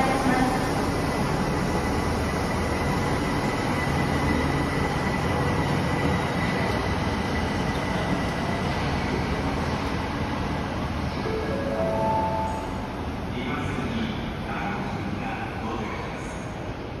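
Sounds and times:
subway train wheels rumbling: 0.0s - 17.0s
high whine: 11.3s - 13.5s.

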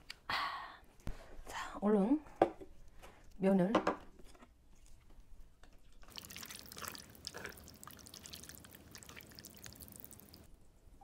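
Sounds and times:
wet sticky noodle stirring: 4.8s - 10.5s.

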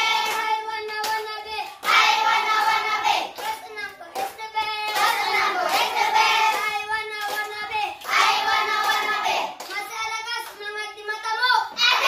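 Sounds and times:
children singing in unison: 0.0s - 9.6s.

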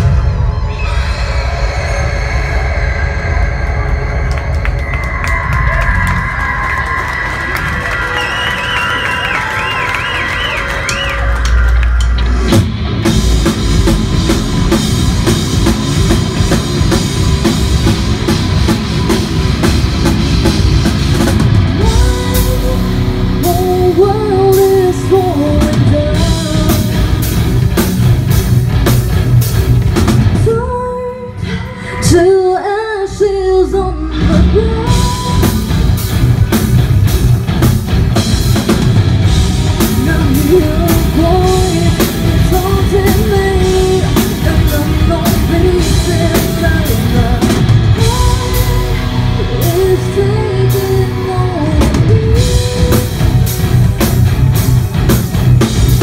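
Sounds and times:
heavy metal band playing: 0.0s - 31.2s, 34.1s - 56.0s
woman singing: 21.8s - 27.3s, 30.4s - 35.7s, 39.8s - 53.5s.

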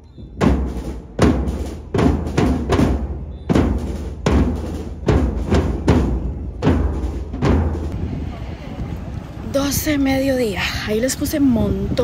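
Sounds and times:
bass drum: 0.3s - 8.0s.

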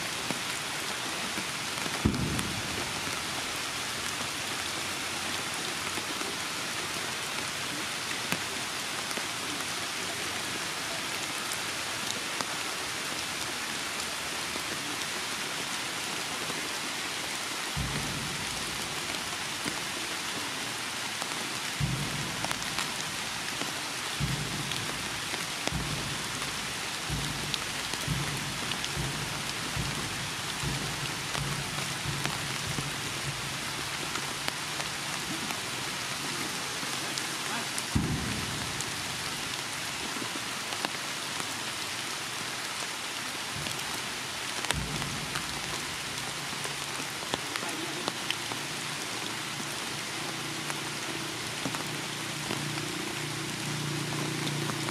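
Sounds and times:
heavy rain falling: 0.0s - 54.9s
short low thumps: 21.9s - 23.4s, 24.3s - 34.1s.

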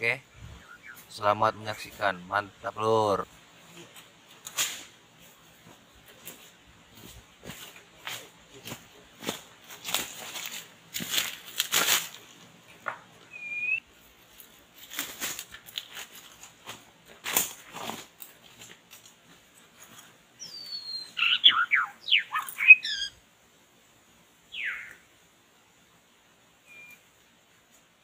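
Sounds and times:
bird whistling: 0.5s - 1.1s, 13.3s - 13.8s, 20.4s - 23.2s, 24.5s - 25.0s, 26.6s - 27.0s
rustling and fluttering: 3.7s - 12.8s, 14.2s - 20.2s
short bird chirp: 13.3s - 13.8s, 20.4s - 23.2s, 24.5s - 25.0s, 26.7s - 27.1s.

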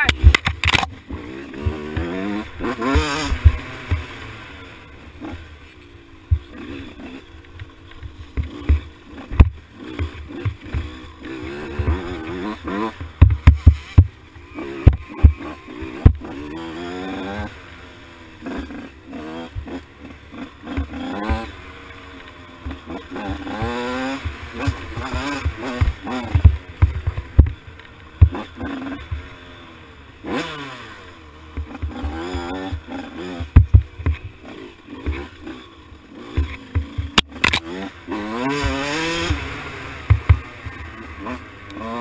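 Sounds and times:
dirt bike engine revving: 0.0s - 42.0s
sharp knocks and thumps: 7.6s - 11.0s, 13.0s - 14.2s, 14.8s - 16.3s, 22.6s - 27.6s, 28.2s - 29.3s, 31.6s - 34.4s, 36.3s - 37.6s, 40.0s - 40.9s.

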